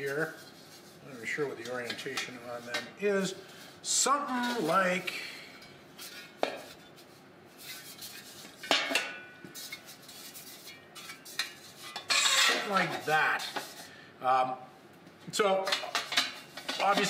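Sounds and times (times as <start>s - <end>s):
metal plates clinking: 8.6s - 9.8s, 10.6s - 13.7s, 15.7s - 17.0s.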